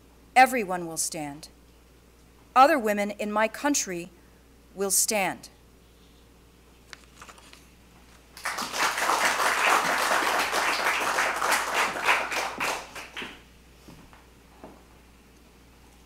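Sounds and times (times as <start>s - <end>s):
audience applauding: 8.4s - 13.4s.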